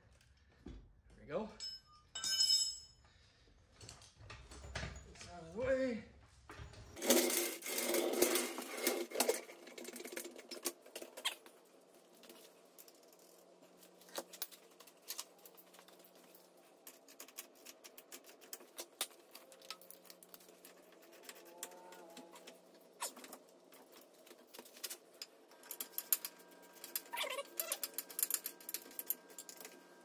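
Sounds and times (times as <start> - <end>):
floor jack scraping on concrete: 7.0 - 10.7.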